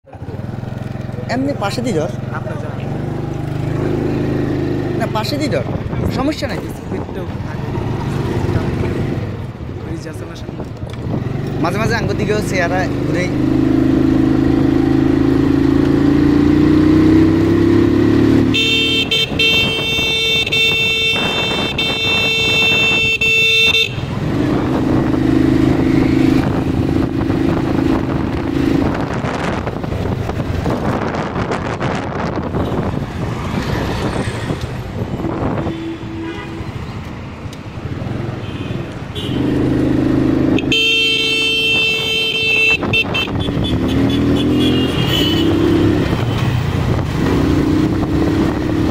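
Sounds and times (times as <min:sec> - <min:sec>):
road noise: 0:00.0 - 0:48.9
wind: 0:00.0 - 0:48.9
vehicle horn: 0:18.5 - 0:24.1, 0:35.5 - 0:36.8, 0:38.4 - 0:39.6, 0:40.5 - 0:45.8.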